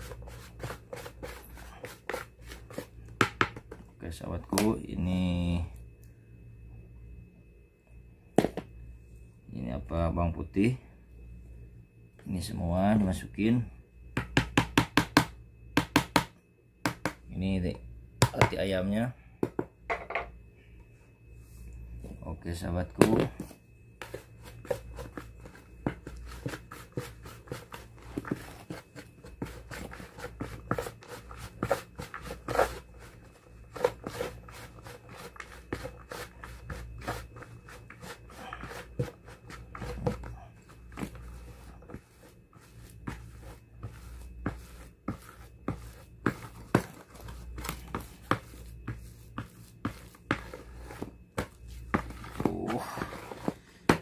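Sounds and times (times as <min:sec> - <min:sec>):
spoon scraping dry mix in basin: 0:00.0 - 0:04.8, 0:22.6 - 0:54.0.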